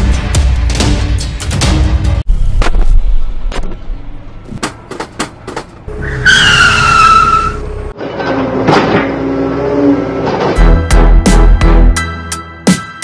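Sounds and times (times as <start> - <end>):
car tyre screech: 5.9 - 7.9.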